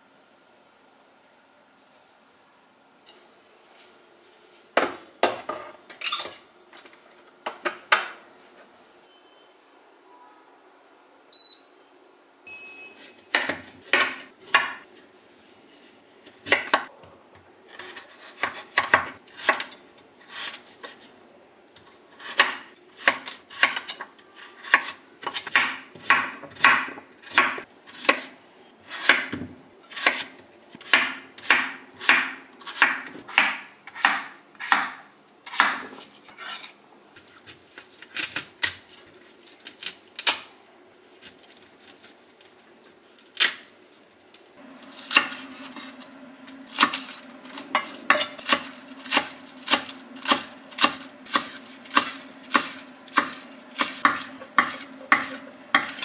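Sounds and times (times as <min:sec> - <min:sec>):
knife cutting on wooden board: 0:47.6 - 0:56.0.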